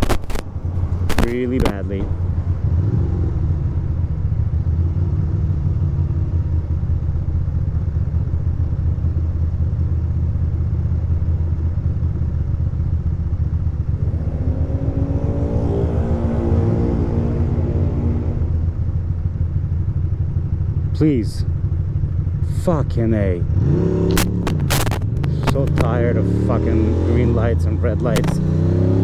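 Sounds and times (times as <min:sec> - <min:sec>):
motorcycle engine idling: 0:00.5 - 0:23.6
steady higher-pitched sound: 0:13.9 - 0:19.0.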